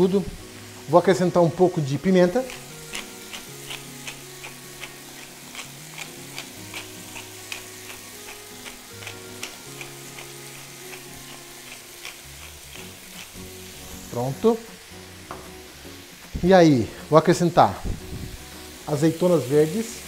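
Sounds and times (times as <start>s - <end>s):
food sizzling in a frying pan: 0.0s - 20.0s
pepper mill grinding clicks: 2.3s - 13.5s.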